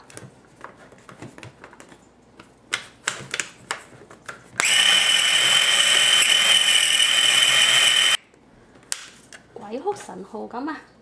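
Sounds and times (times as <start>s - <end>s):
food processor motor whining: 4.6s - 8.2s.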